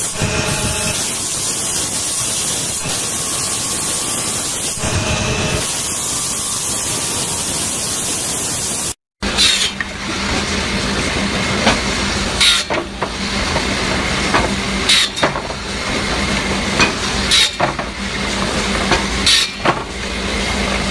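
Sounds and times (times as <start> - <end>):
circular saw humming: 0.0 - 8.3
saw blade rasping through bamboo: 9.2 - 9.8, 11.6 - 20.6.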